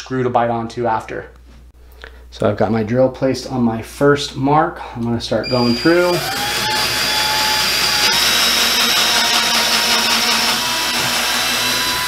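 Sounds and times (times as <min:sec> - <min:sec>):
cordless drill whining: 0:05.4 - 0:12.0.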